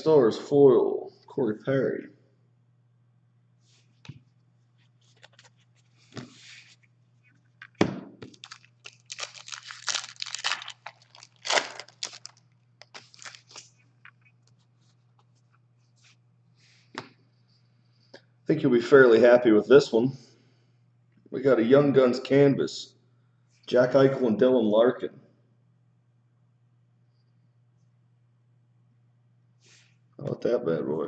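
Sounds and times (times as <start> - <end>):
cards shuffling: 5.0 - 6.7, 7.6 - 15.0
foil wrapper crinkling: 8.2 - 13.8.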